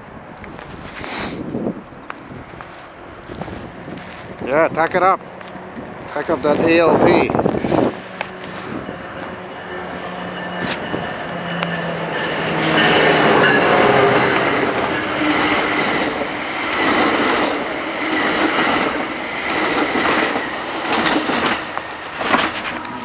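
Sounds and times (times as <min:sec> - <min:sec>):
locomotive humming: 0:00.8 - 0:23.0
train wheels clacking over rail joints: 0:10.0 - 0:23.0.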